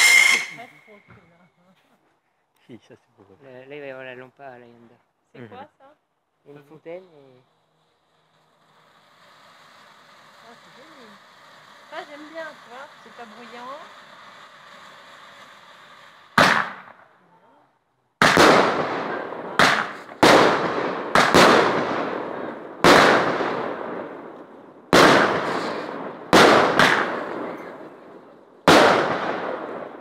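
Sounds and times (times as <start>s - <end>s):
firework bang: 0.0s - 1.0s, 8.6s - 17.1s, 18.2s - 30.0s
firework fountain hissing: 0.0s - 1.0s, 6.4s - 30.0s
firework launch bangs: 0.0s - 1.0s, 8.1s - 17.1s, 18.2s - 30.0s.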